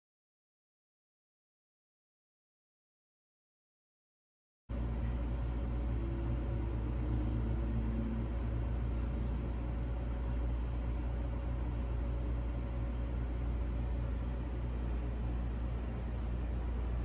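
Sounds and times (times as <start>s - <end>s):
bottle warmer humming: 4.7s - 17.0s.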